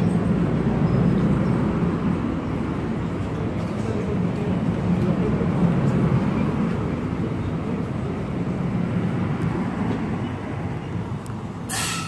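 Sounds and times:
train rumbling on rails: 0.0 - 12.0
short hiss: 11.7 - 12.0.

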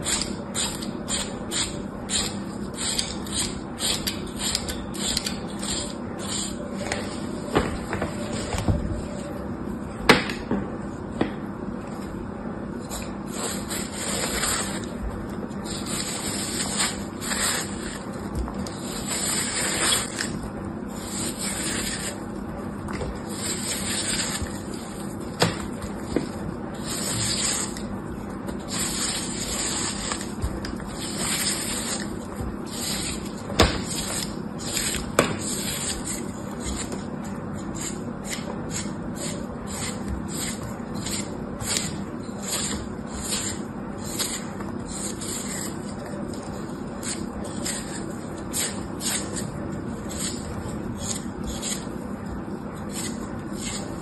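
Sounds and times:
blade scraping hard soap: 13.0 - 15.0, 15.6 - 22.3, 23.2 - 27.9, 28.5 - 52.0, 52.8 - 54.0.

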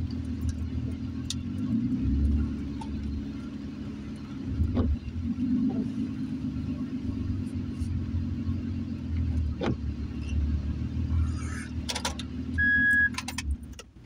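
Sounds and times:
truck engine rumbling: 0.0 - 14.0
short electronic beep: 12.6 - 13.2.

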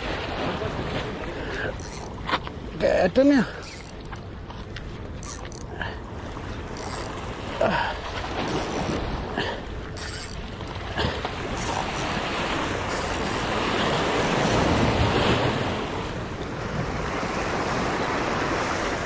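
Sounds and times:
waves splashing against rocks: 0.0 - 19.0
wind buffeting microphone: 6.0 - 19.0.

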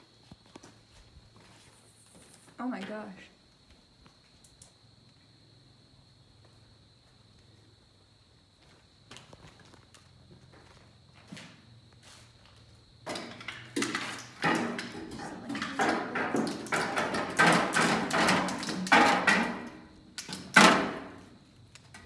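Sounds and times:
metal clanking and banging: 13.1 - 19.8.

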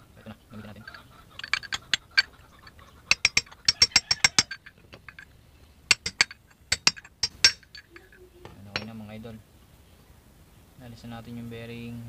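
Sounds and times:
ratchet tool clicking: 0.9 - 5.2, 5.9 - 8.1.

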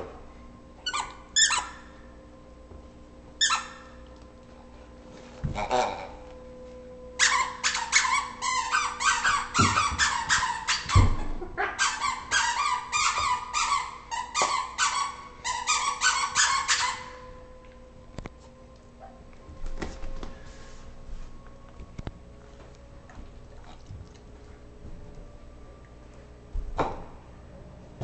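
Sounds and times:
dog toy squeaking: 0.8 - 1.8, 3.4 - 3.9, 7.2 - 17.1.

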